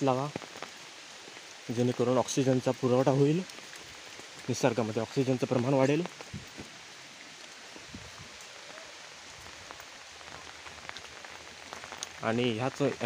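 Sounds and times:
faint raindrop ticks: 0:00.0 - 0:13.0
steady rain hiss: 0:00.0 - 0:13.0.

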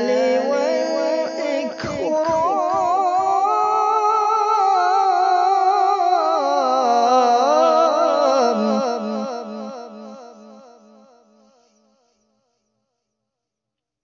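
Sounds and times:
man reciting melodically: 0:00.0 - 0:10.8.

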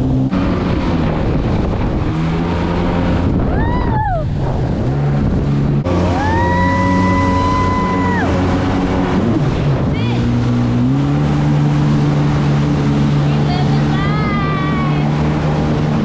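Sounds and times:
jet ski engines whining: 0:00.0 - 0:16.0.

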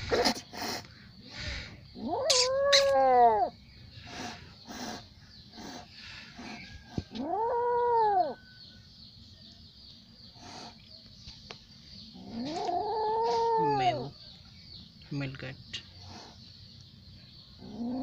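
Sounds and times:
kitten meowing: 0:02.0 - 0:03.5, 0:12.5 - 0:14.1.

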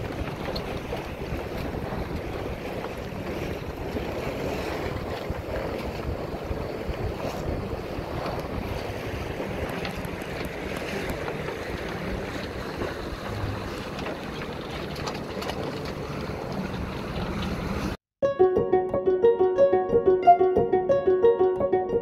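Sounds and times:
sea water washing along hull: 0:00.0 - 0:18.0
wind buffeting microphone: 0:00.0 - 0:18.0.

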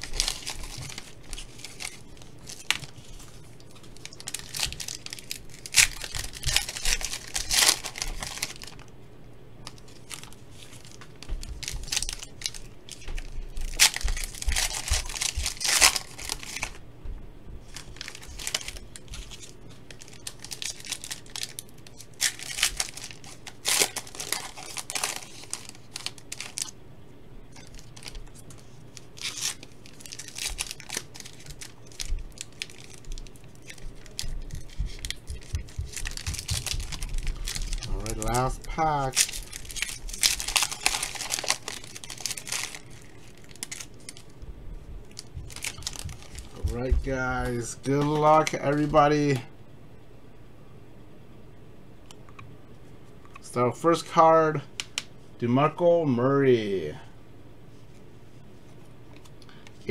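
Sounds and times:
foil packs tearing and crinkling: 0:00.0 - 0:08.8, 0:09.7 - 0:16.8, 0:17.7 - 0:26.8, 0:27.6 - 0:44.3, 0:45.1 - 0:49.4.

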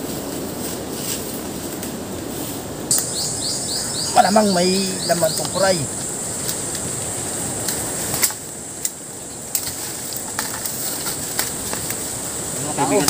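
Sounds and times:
sharp clicks: 0:02.9 - 0:04.1
high-pitched insect buzz: 0:02.9 - 0:08.3.

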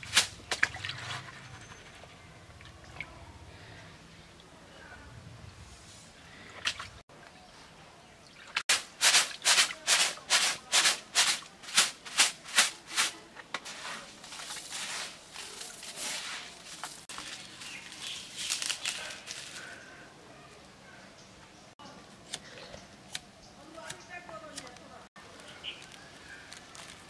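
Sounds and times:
rice shaken in plastic colander: 0:08.7 - 0:17.4.

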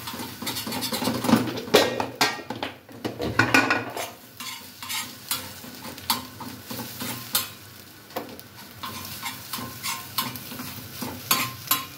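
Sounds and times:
knife scraping and tapping on iron pan: 0:00.0 - 0:02.6, 0:03.4 - 0:07.6, 0:08.8 - 0:11.9
egg sizzling: 0:03.4 - 0:11.9.

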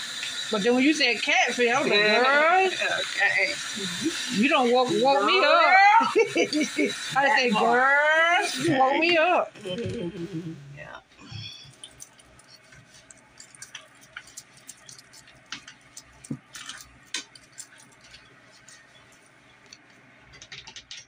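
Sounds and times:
hands clicking and tapping hair: 0:11.7 - 0:18.8, 0:19.7 - 0:21.0.

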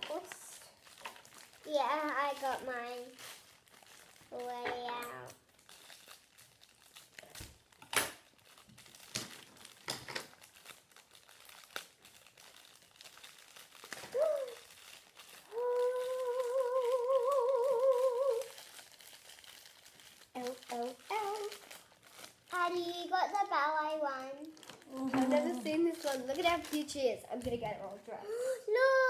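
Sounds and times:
plastic wrappers crinkling: 0:00.0 - 0:29.0
child humming a wavering note: 0:15.5 - 0:18.5.

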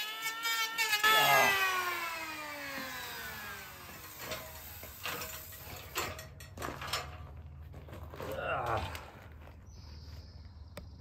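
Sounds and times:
electric planer spinning down: 0:00.0 - 0:04.2.

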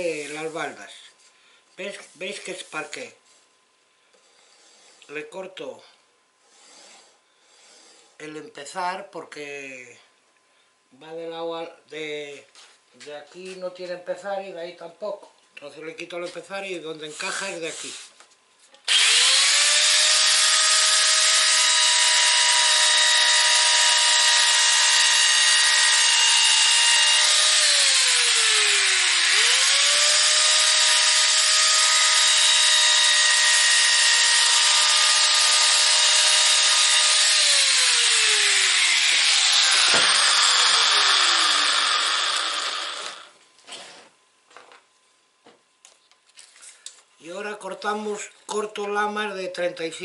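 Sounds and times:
saw motor winding down: 0:18.9 - 0:43.3
electric saw cutting wood: 0:18.9 - 0:43.4.

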